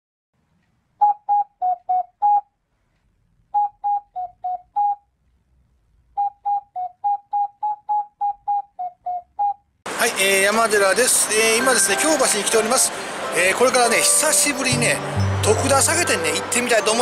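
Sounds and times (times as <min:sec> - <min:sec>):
intro jingle of clipped notes: 0:11.6 - 0:17.0.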